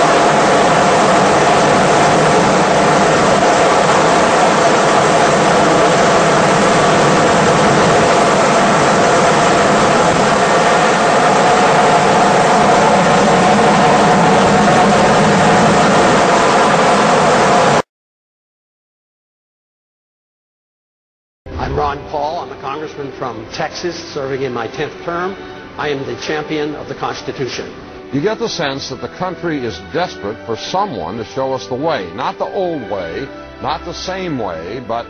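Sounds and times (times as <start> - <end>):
helicopter engine and rotor drone: 0.0 - 17.8.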